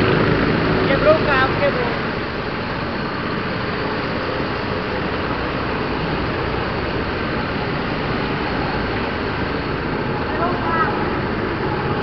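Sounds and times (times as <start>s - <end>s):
car cabin road noise: 0.0s - 12.0s.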